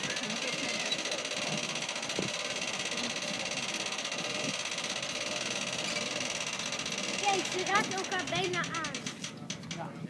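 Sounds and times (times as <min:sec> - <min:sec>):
hand-cranked gear winch turning: 0:00.0 - 0:10.0.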